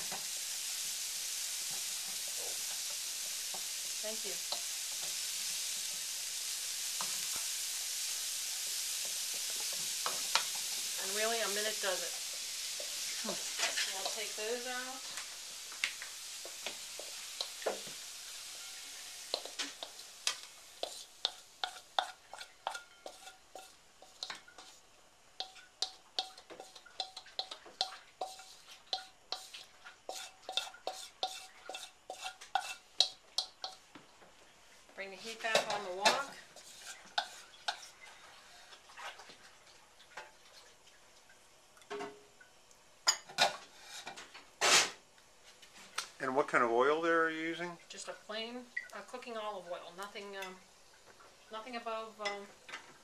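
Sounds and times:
oil sizzling: 0:00.0 - 0:53.0
metal spatula scraping a wok: 0:06.9 - 0:15.3, 0:16.2 - 0:24.8, 0:25.4 - 0:33.8, 0:35.2 - 0:39.2, 0:43.1 - 0:45.0.

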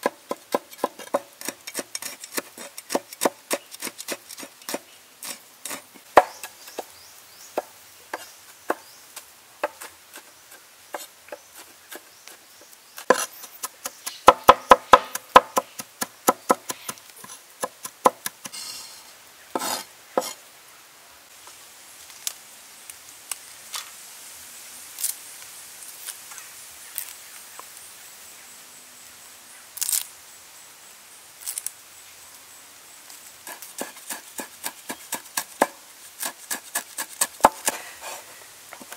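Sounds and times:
cleaver chopping on wooden board: 0:05.7 - 0:06.9, 0:13.0 - 0:18.6, 0:35.1 - 0:37.8.

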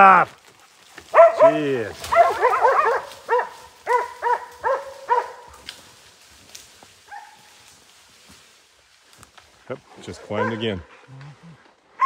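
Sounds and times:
faint dog yelp: 0:01.1 - 0:05.5
dogs barking: 0:01.1 - 0:05.7, 0:07.0 - 0:07.6, 0:10.3 - 0:10.9.

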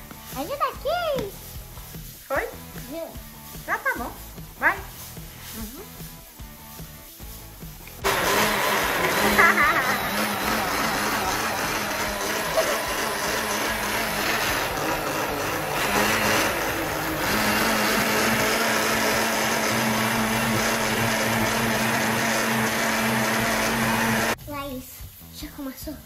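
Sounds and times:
blender motor whirring: 0:08.0 - 0:24.4.

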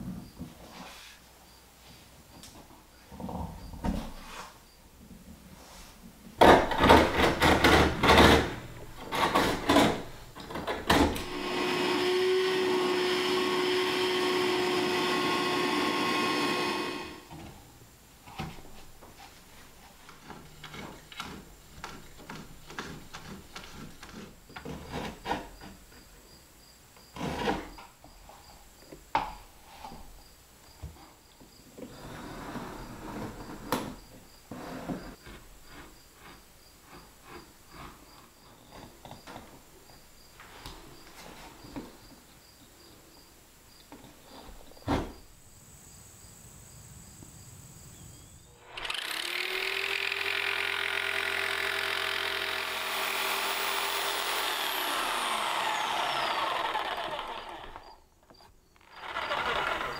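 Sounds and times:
loud knocks on flooring planks: 0:06.4 - 0:08.6
power tool running: 0:10.9 - 0:17.3, 0:48.5 - 0:58.0, 0:58.8 - 0:59.9
taps clicks and scraping: 0:20.0 - 0:25.8.

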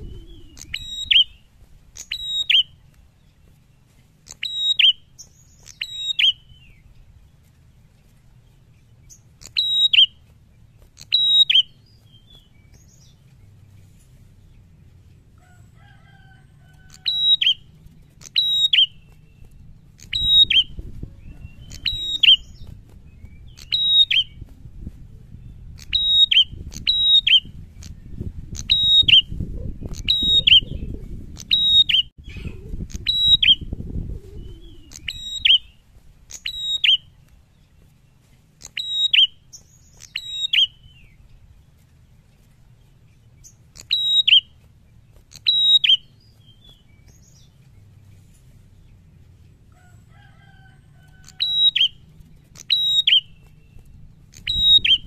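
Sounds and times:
low rumbling noise: 0:00.0 - 0:02.0, 0:18.9 - 0:36.0
songbird calling sharp high notes: 0:00.0 - 0:02.8, 0:04.2 - 0:06.8, 0:09.4 - 0:10.3, 0:10.9 - 0:13.2, 0:18.2 - 0:22.7, 0:34.4 - 0:37.2, 0:43.5 - 0:44.6, 0:45.3 - 0:47.5, 0:51.3 - 0:55.0.

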